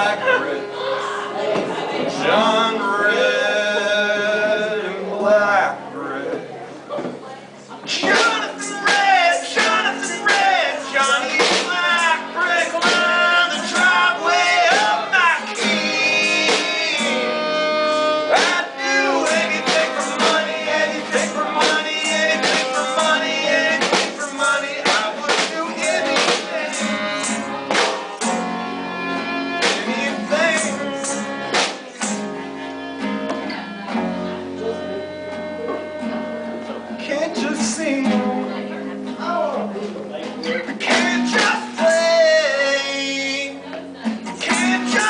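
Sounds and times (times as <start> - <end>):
strummed acoustic guitar: 0.0 - 6.5, 7.8 - 45.0
drum kit: 7.9 - 32.4, 40.3 - 42.3, 44.2 - 45.0
person singing: 7.9 - 32.9, 40.5 - 45.0
fiddle: 10.4 - 37.1
snare drum: 23.8 - 24.2, 27.7 - 28.2.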